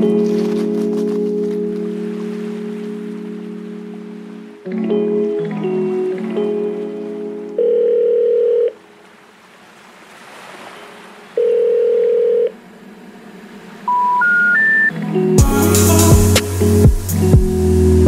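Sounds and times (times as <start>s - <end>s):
long telephone tones: 7.6s - 8.8s, 11.4s - 12.5s
short rising beeps: 13.9s - 15.0s
music with heavy bass beat: 15.4s - 18.0s.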